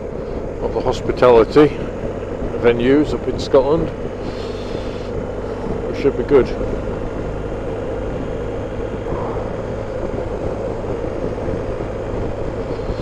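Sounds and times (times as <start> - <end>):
motorcycle engine drone: 0.0 - 13.0
wind rush: 3.9 - 13.0.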